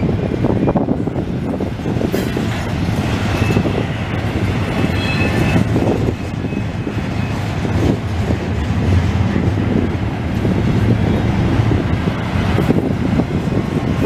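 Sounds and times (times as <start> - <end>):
train wheels rumbling on rails: 0.0 - 14.0
high wheel squeal: 3.2 - 7.7.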